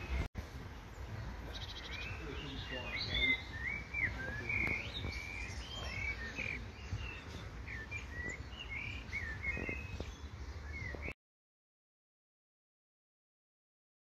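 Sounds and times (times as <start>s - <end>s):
birds chirping: 0.0s - 11.2s
low steady background noise: 0.0s - 11.2s.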